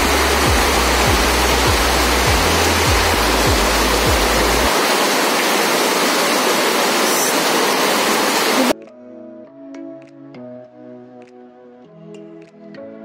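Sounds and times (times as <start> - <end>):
heavy rain pouring: 0.0 - 8.8
rainwater streaming off roof: 0.0 - 8.8
soft background music: 8.7 - 13.0.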